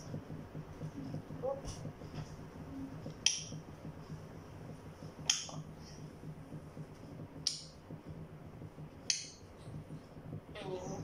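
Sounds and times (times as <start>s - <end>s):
parrot clicking: 3.1s - 10.6s.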